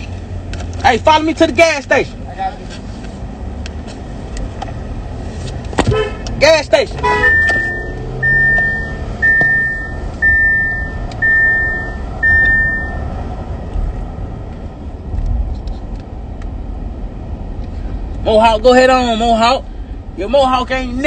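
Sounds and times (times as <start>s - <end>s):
car engine rumble: 0.0s - 21.0s
road noise: 0.0s - 21.0s
car warning chime: 7.0s - 13.1s.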